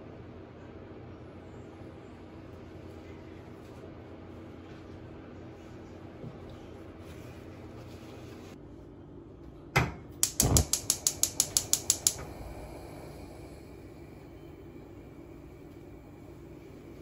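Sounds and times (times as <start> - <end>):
rapid mechanical clicks: 10.2 - 12.2
sharp click: 10.2 - 12.4.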